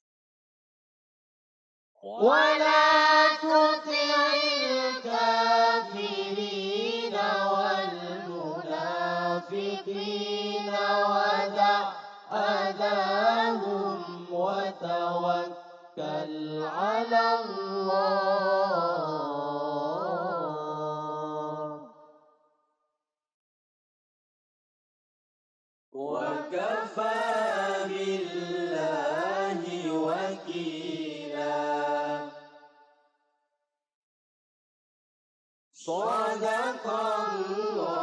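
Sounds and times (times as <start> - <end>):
melodic recitation into microphones: 2.0 - 22.0, 26.0 - 32.6, 35.8 - 38.0.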